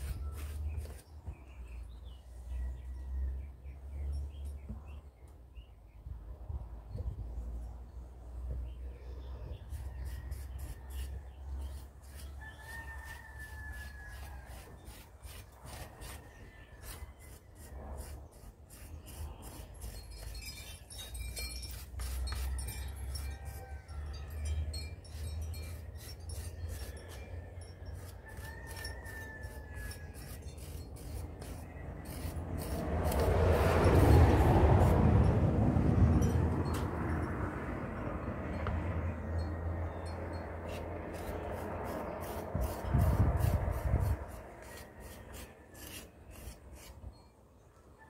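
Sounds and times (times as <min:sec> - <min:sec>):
rib scraping clay bowl: 0:00.0 - 0:01.2, 0:09.6 - 0:35.0, 0:40.6 - 0:47.0.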